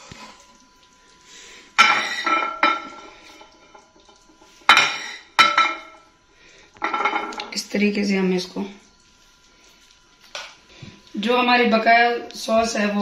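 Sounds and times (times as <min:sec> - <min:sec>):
utensils clinking on dishes: 0:01.8 - 0:03.8, 0:04.6 - 0:06.0, 0:06.8 - 0:07.6.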